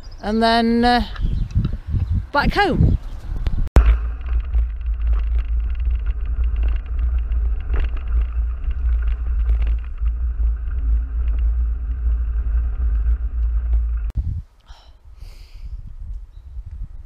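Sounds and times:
wind rumble on microphone: 0:00.0 - 0:17.0
bike knocks and rattles: 0:03.8 - 0:14.2.

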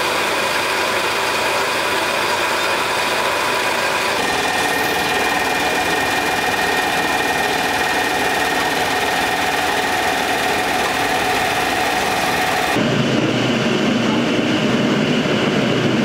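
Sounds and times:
refrigeration compressor rattling: 0:02.8 - 0:12.8
steady high tones: 0:04.0 - 0:12.8.

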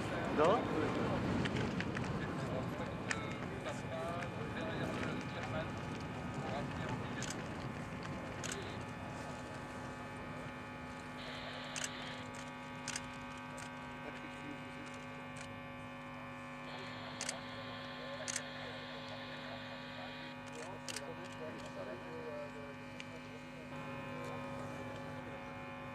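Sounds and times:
steady electrical hum: 0:00.0 - 0:25.9
high buzzing: 0:07.8 - 0:25.9.

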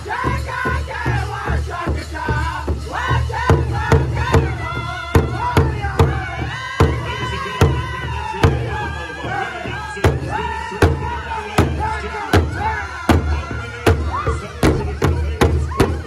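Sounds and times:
group singing in high voices: 0:00.0 - 0:16.0
large drum steady beat: 0:00.0 - 0:16.0.

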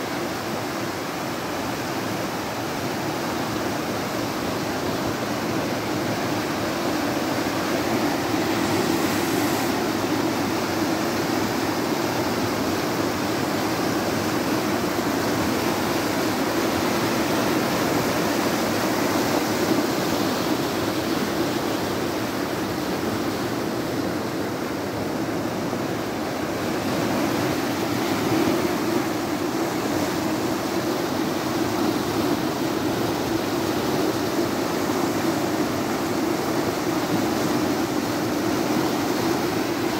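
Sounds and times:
floodwater rushing: 0:00.0 - 0:39.9.

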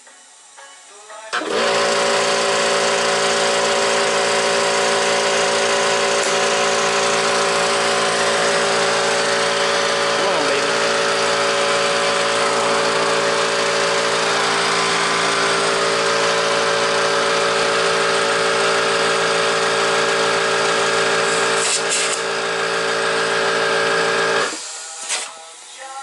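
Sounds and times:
air compressor running: 0:01.3 - 0:25.7
air hiss burst: 0:21.2 - 0:22.2, 0:24.5 - 0:25.4.

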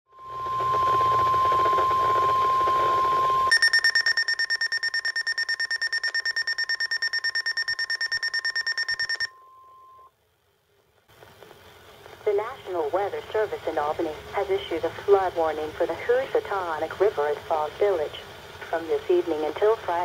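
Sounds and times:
high warning tone: 0:00.1 - 0:10.1
rapid alarm beeping: 0:00.2 - 0:10.1
radio static: 0:11.5 - 0:20.0.

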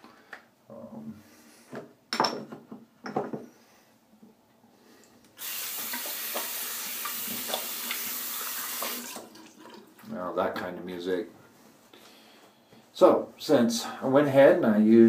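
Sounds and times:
tap water running into sink: 0:05.4 - 0:10.1.

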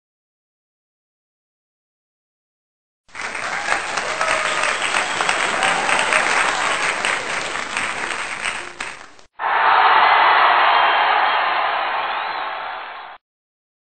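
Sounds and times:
crowd noise: 0:03.1 - 0:13.2
people clapping: 0:03.1 - 0:13.2.

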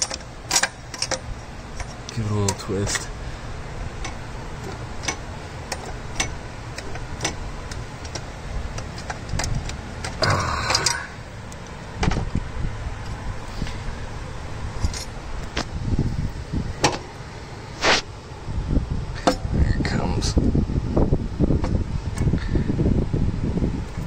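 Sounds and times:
pliers clicking on metal clamps: 0:04.0 - 0:11.1.

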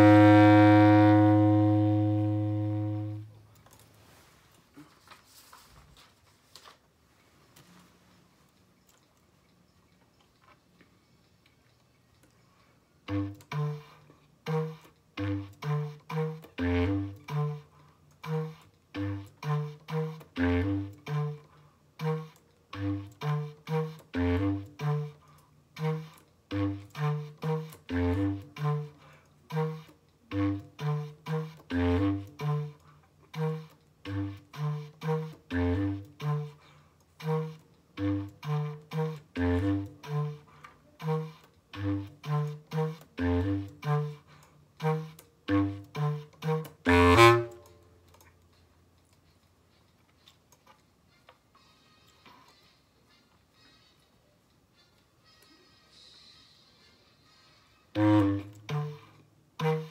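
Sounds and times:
bass clarinet playing: 0:00.0 - 0:03.4, 0:13.0 - 0:47.8, 0:57.9 - 0:59.9.

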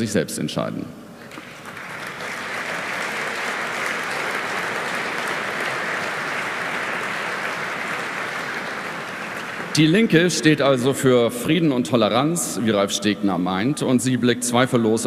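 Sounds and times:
audience applauding: 0:01.3 - 0:10.2.

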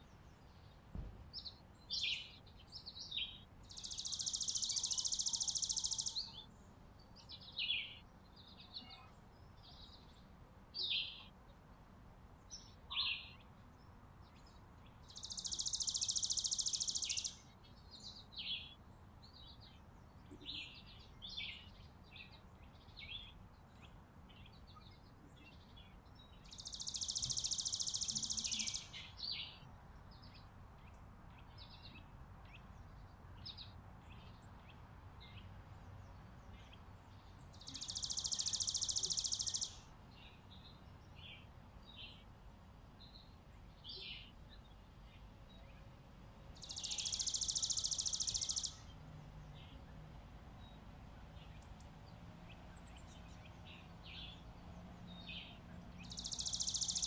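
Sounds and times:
short high bird chirps: 0:26.7 - 0:29.0.

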